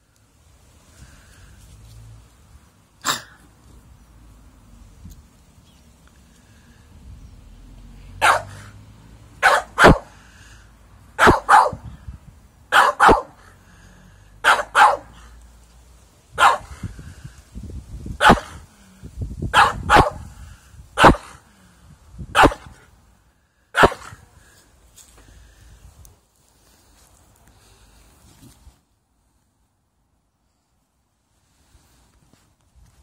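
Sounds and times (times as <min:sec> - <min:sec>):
dog barking: 0:08.2 - 0:08.7, 0:09.4 - 0:10.2, 0:11.2 - 0:11.9, 0:12.7 - 0:13.4, 0:14.4 - 0:15.3, 0:16.4 - 0:16.8, 0:18.2 - 0:18.6, 0:19.5 - 0:20.3, 0:21.0 - 0:21.4, 0:22.4 - 0:22.8, 0:23.8 - 0:24.2.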